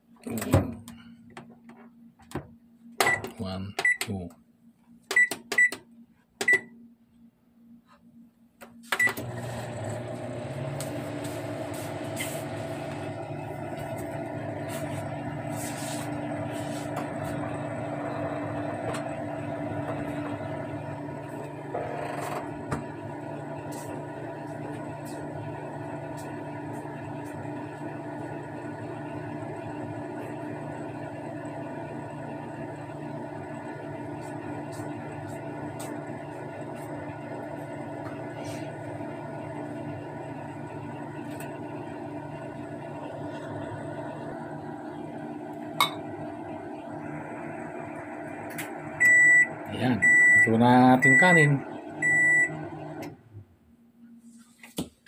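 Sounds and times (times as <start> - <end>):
microwave keypad beeps: 3.0 - 4.1, 5.1 - 5.8, 6.4 - 6.7, 9.0 - 9.2, 49.0 - 52.6
microwave oven humming: 8.2 - 54.2.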